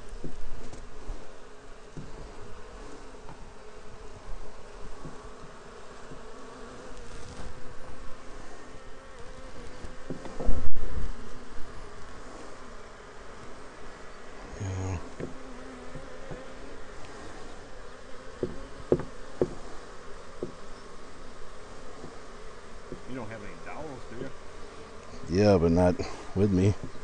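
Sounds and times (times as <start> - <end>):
honey bees buzzing: 0.0 - 27.0
light knocks: 18.4 - 19.6.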